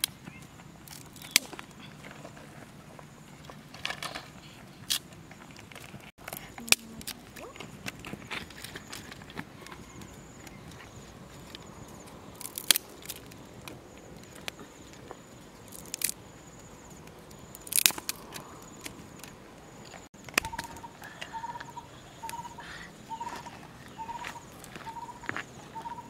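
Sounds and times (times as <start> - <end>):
wooden sticks snapping: 0.9 - 1.7, 12.4 - 14.6, 15.7 - 16.2, 17.6 - 19.4
faint high insect drone: 10.0 - 26.0.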